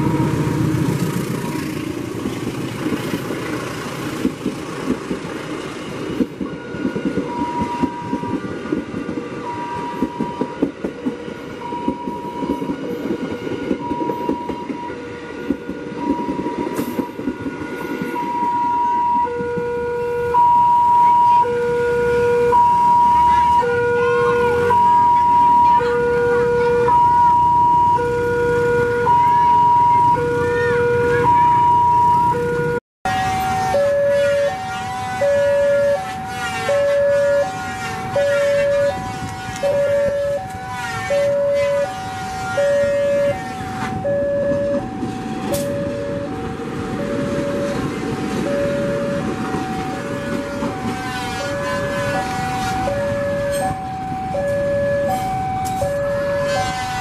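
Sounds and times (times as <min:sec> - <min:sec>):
diesel locomotive rumbling past: 0:00.0 - 0:57.0
two-tone level crossing alarm: 0:05.8 - 0:57.0.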